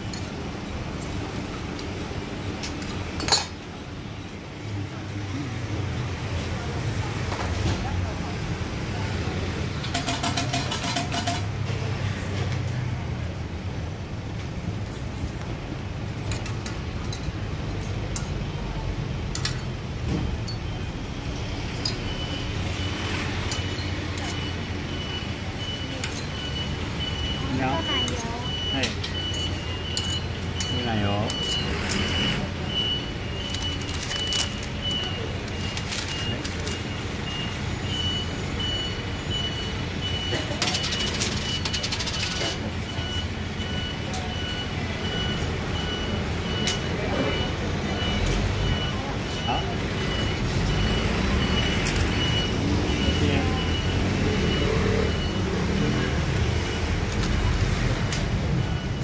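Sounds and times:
low street rumble: 0.0s - 59.0s
metal tongs clinking on griddle: 9.8s - 11.5s.

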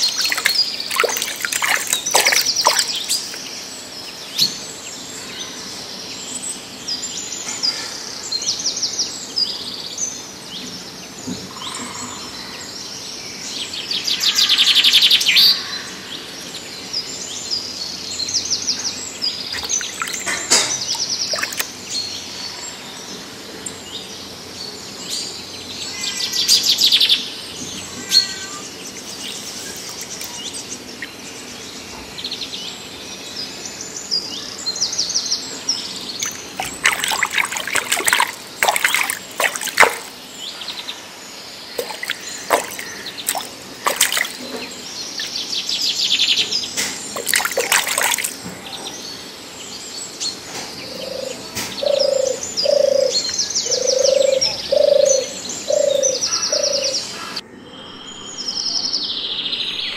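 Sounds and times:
birds chirping: 0.0s - 6.2s, 18.2s - 24.1s, 25.4s - 59.9s.

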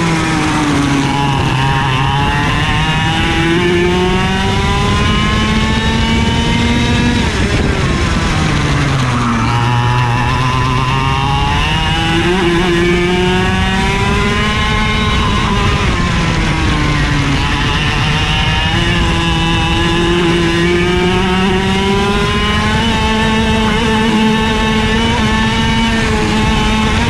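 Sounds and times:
kart engine revving: 0.0s - 27.0s.

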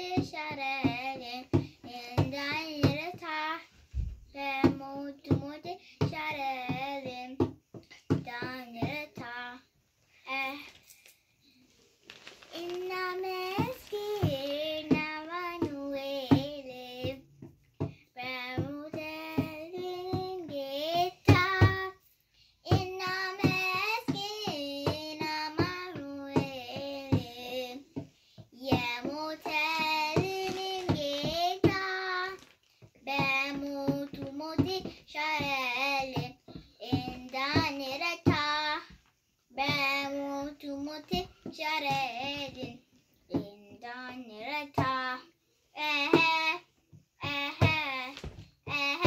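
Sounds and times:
girl singing a hymn: 0.0s - 49.0s
hand drum beat: 12.8s - 22.0s, 22.7s - 32.4s, 33.0s - 42.8s, 47.2s - 49.0s.

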